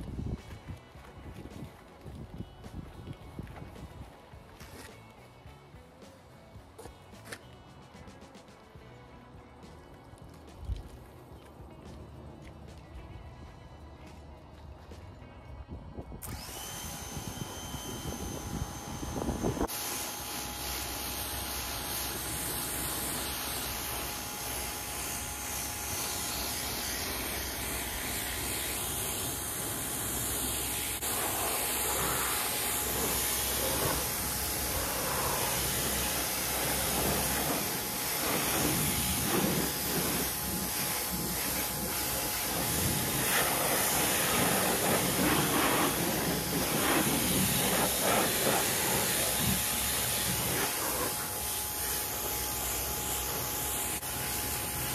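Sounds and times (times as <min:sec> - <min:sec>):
pressure washer spraying water: 0:16.2 - 0:54.9.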